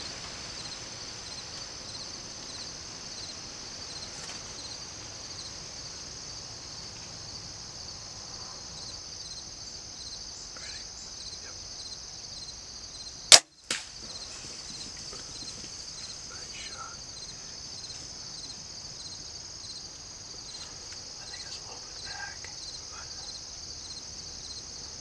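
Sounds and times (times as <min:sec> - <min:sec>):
insects chorus: 0:00.0 - 0:25.0
faint snap: 0:13.3 - 0:14.2
bow shot crack: 0:13.3 - 0:14.3.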